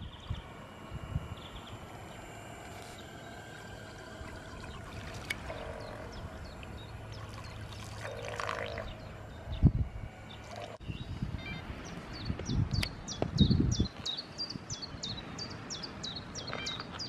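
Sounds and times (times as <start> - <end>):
low steady hum: 0.0 - 17.0
outdoor background noise: 0.0 - 17.0
water trickling and lapping: 2.7 - 9.3.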